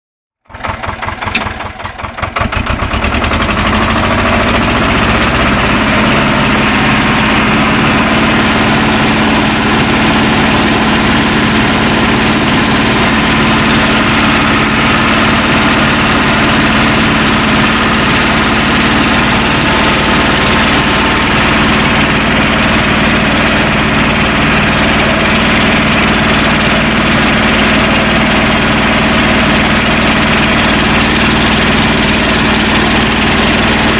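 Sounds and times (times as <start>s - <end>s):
tractor engine running: 0.4s - 33.9s.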